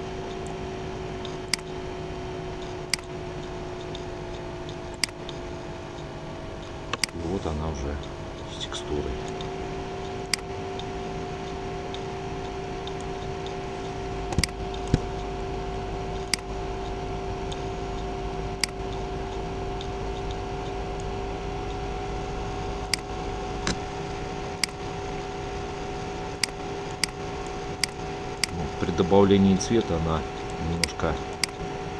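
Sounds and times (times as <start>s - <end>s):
steady electrical hum: 0.0s - 31.9s
computer mouse clicking: 1.2s - 1.8s, 2.6s - 7.2s, 9.3s - 15.3s, 16.1s - 21.1s, 26.4s - 27.2s.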